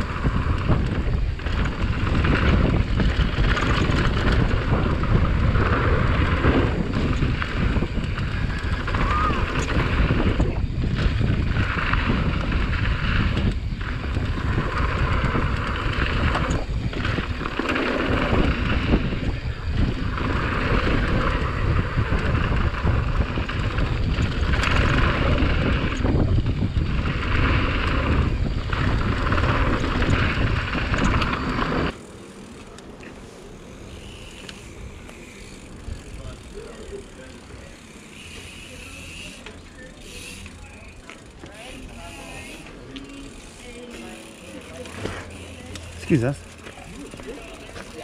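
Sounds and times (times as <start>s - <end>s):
wind buffeting microphone: 0.0s - 32.0s
tyres rolling on paving stones: 0.0s - 48.0s
tyres rolling over gravel: 0.0s - 48.0s.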